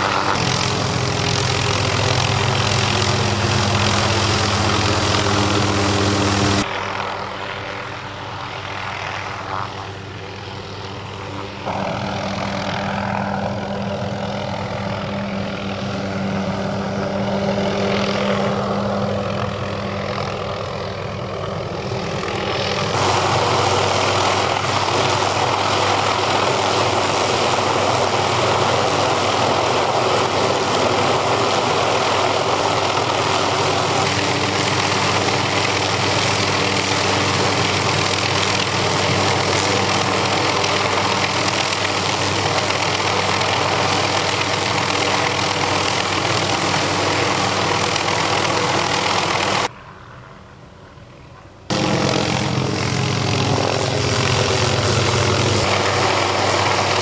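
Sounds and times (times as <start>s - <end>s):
helicopter flying: 0.0s - 57.0s.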